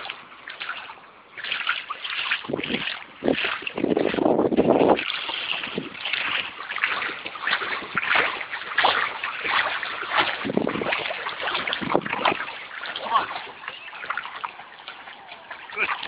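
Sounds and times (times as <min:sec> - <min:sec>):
water splashing and sloshing: 0:00.0 - 0:16.0
wind buffeting microphone: 0:02.2 - 0:13.8.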